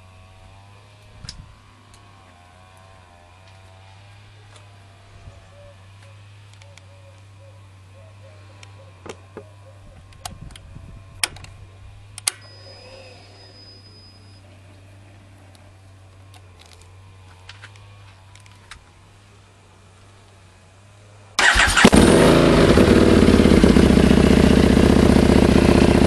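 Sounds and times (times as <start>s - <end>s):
thin high tone: 12.4s - 14.6s.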